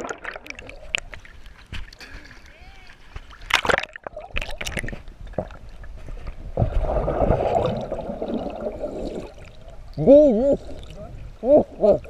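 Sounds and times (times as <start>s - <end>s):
water splashing against camera: 0.0s - 11.2s
muffled underwater rush and bubbling: 3.4s - 10.0s.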